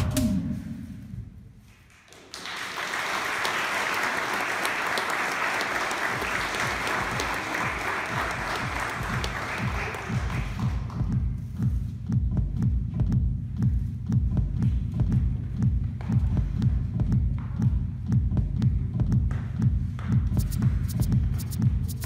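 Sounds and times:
audience applause: 2.1 - 10.9
electronic dance music: 6.0 - 13.9, 20.3 - 22.0.

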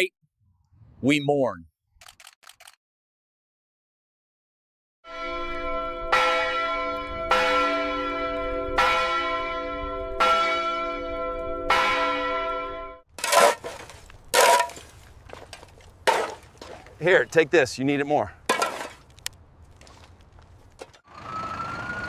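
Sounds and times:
church bell tolling: 5.1 - 13.0
shovels striking rubble: 13.1 - 17.0, 18.5 - 19.3.

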